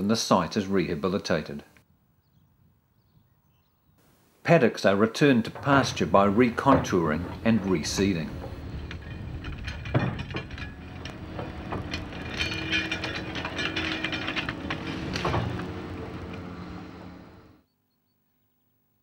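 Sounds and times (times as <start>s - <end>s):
metallic clanks and knocks: 5.1s - 17.6s
excavator diesel engine running: 5.5s - 17.6s.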